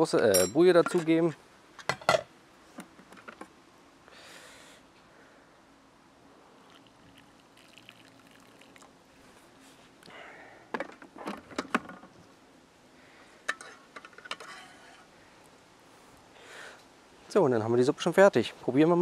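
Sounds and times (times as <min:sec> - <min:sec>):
broth trickling onto plate: 0:06.6 - 0:09.3.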